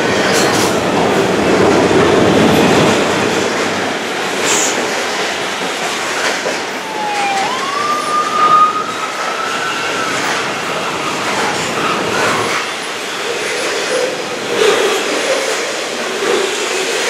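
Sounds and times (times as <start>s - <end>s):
freight train rolling past: 0.0s - 17.0s
high wheel squeal: 6.8s - 13.6s.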